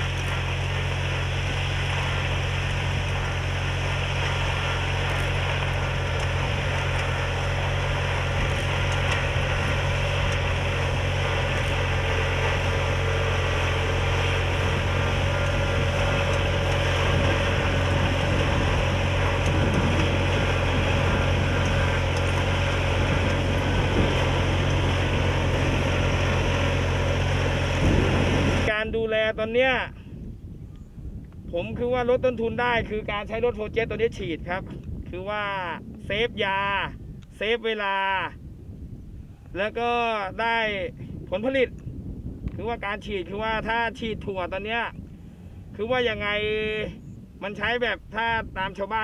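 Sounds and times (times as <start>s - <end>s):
crop sprayer engine droning: 0.0s - 28.9s.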